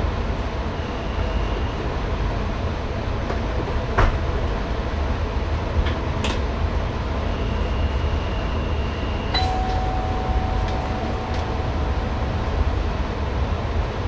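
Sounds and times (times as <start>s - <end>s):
train cab rumble: 9.0s - 14.0s
lower electronic tone: 9.3s - 14.0s
high electronic tone: 9.4s - 13.6s.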